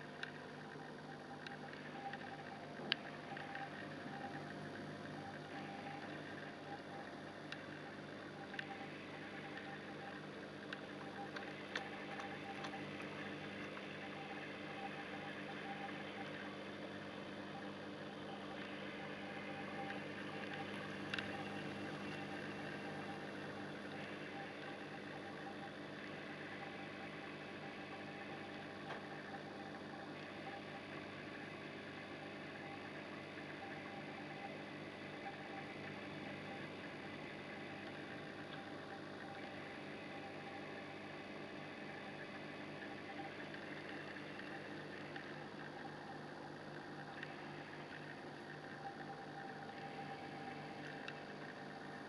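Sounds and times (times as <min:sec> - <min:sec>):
aquarium pump humming: 0:00.0 - 0:52.0
circulating water: 0:00.0 - 0:52.0
faint sharp ticks: 0:00.1 - 0:31.3, 0:46.6 - 0:52.0
faint click: 0:01.4 - 0:03.8, 0:19.6 - 0:22.8.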